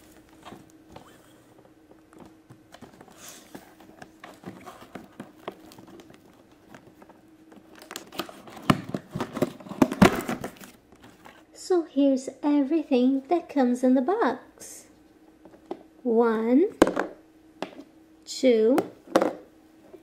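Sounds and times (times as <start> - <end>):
packaging rustling and clicking: 2.0 - 11.4.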